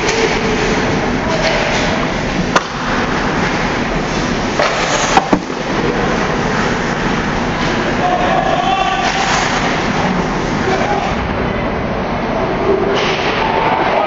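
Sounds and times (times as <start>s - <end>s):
rushing din of hockey play: 0.0s - 11.3s, 12.6s - 14.0s
stick clacking puck: 4.6s - 5.5s.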